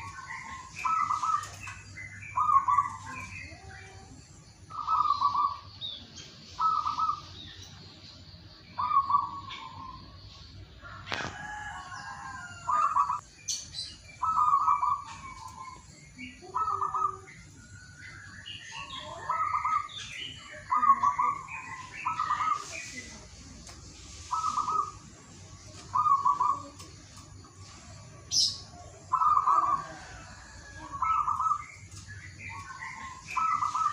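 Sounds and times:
dove cooing: 0:06.6 - 0:07.3, 0:08.8 - 0:10.0, 0:25.9 - 0:26.9, 0:29.1 - 0:31.6.

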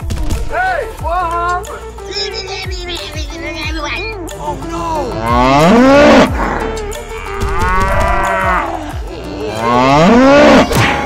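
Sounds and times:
cow mooing: 0:05.1 - 0:10.7.

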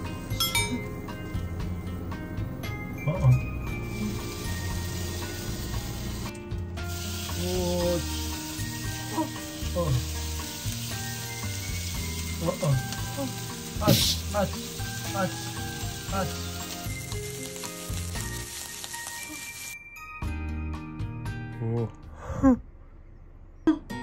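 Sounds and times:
background music: 0:00.0 - 0:22.6
meat sizzling in a frying pan: 0:03.8 - 0:19.8.

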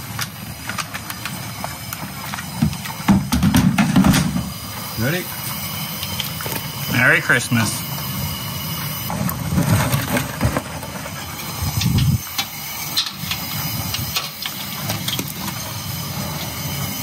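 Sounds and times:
gas burner running: 0:00.0 - 0:17.0.

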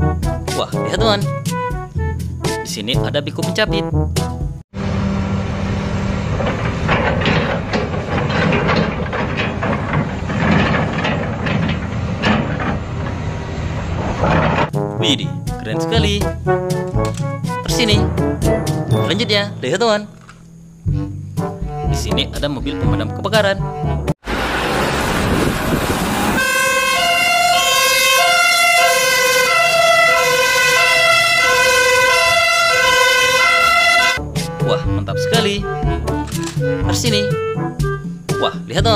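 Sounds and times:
excavator engine hum: 0:04.8 - 0:22.4, 0:23.6 - 0:38.3
grapple clanking: 0:06.2 - 0:15.6, 0:16.3 - 0:21.6
rush of noise: 0:24.2 - 0:26.5
fire engine two-tone siren: 0:24.2 - 0:34.2.

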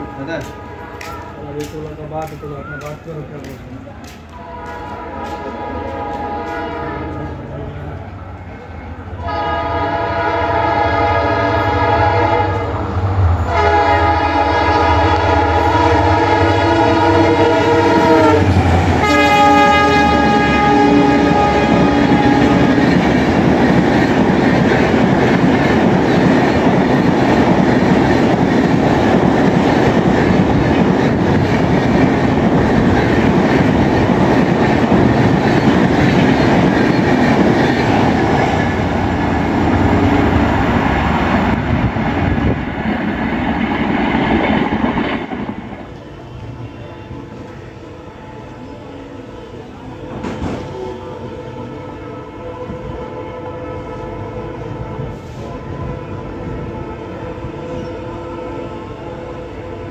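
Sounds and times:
locomotive horn blasts: 0:00.0 - 0:01.5, 0:04.4 - 0:07.5, 0:09.2 - 0:12.8, 0:13.4 - 0:22.9, 0:50.8 - 0:59.9
train coaches rushing past: 0:00.0 - 0:59.9.

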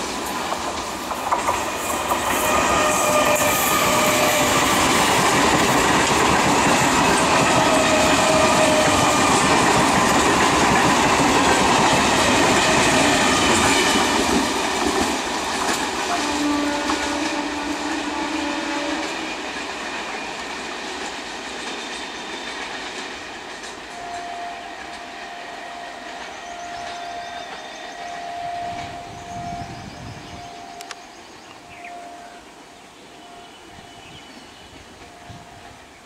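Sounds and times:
train wheels clattering on rails: 0:00.0 - 0:29.6
train horn: 0:01.7 - 0:05.3, 0:06.8 - 0:14.6, 0:15.9 - 0:19.7, 0:23.8 - 0:36.0.

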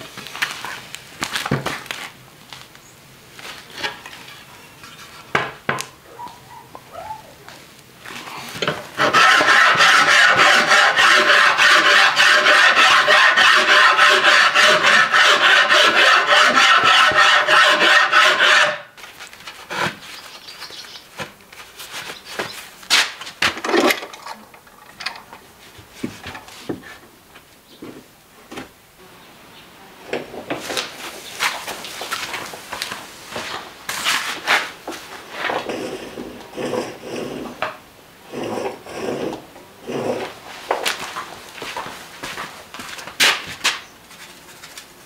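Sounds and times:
wood rasp stroking wood: 0:08.6 - 0:20.2.

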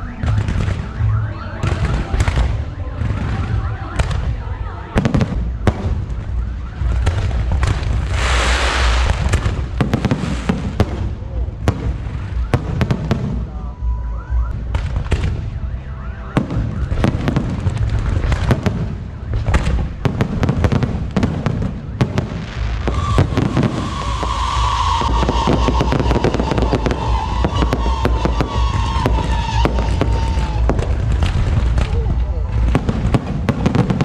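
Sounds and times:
fireworks bangs and crackling: 0:00.0 - 0:13.8, 0:14.4 - 0:34.0
deep continuous rumble: 0:00.0 - 0:34.0
high falling whistle: 0:22.8 - 0:30.6.

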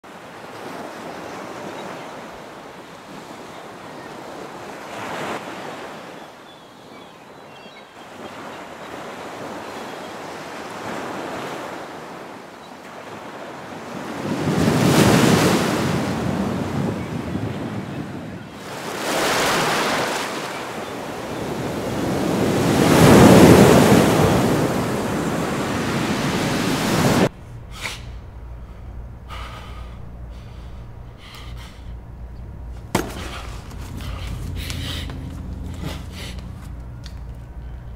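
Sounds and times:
surf breaking on rocky shore: 0:13.1 - 0:27.3.

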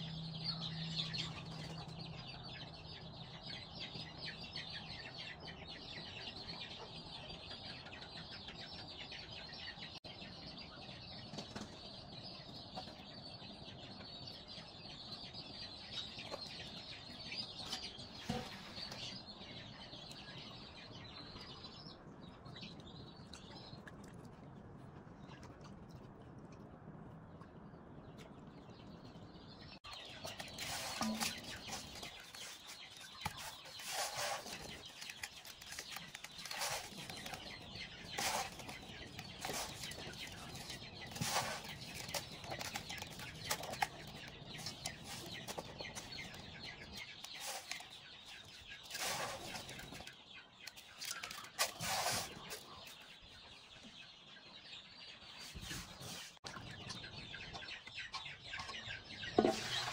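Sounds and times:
chickens clucking: 0:16.1 - 0:19.9, 0:29.9 - 0:59.9.

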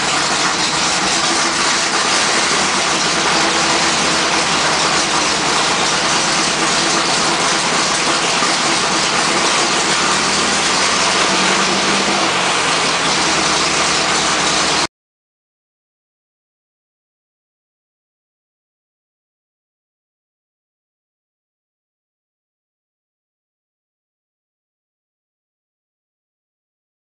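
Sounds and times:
loud machine hiss: 0:00.0 - 0:14.9.

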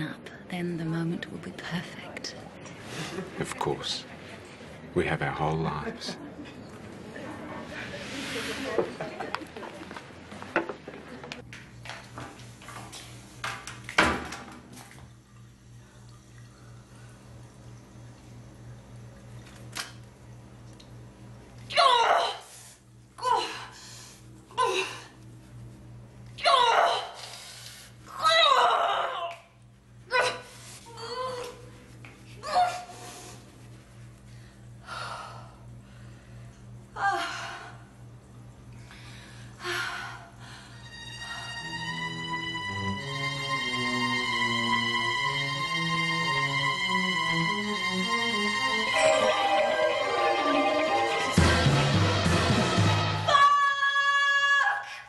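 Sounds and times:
steady low hum: 0:22.4 - 0:28.3, 0:29.5 - 0:42.6.

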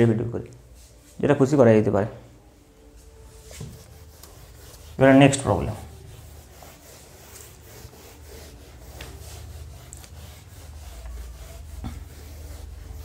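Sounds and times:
eraser rubbing on whiteboard: 0:03.4 - 0:13.0.

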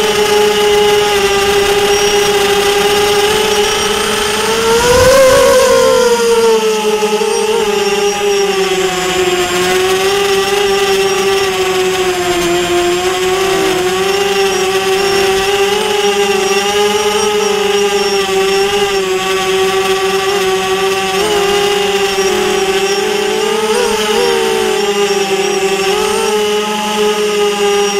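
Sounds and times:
drone motors and propellers whining: 0:00.0 - 0:27.9.

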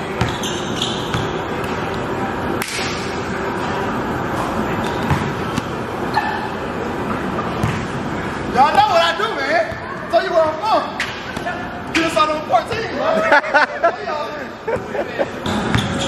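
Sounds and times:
basketball bouncing on gym floor: 0:04.9 - 0:05.8, 0:07.6 - 0:08.0, 0:15.5 - 0:16.0
basketball striking hoop: 0:05.1 - 0:05.7, 0:07.6 - 0:07.9.

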